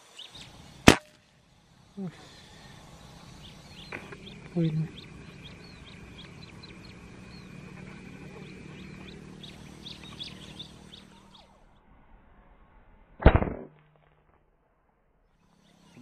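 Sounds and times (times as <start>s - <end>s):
small birds chirping: 0.0s - 11.8s, 15.4s - 16.0s
air rifle shot: 0.8s - 1.2s, 13.2s - 13.8s.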